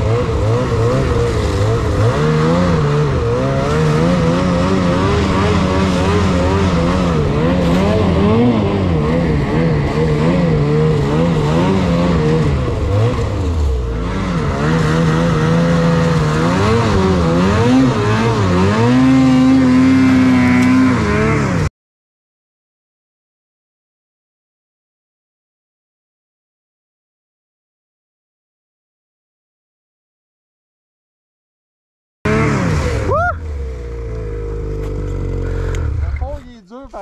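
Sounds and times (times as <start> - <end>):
snowmobile engine revving: 0.0 - 21.7, 32.3 - 37.0.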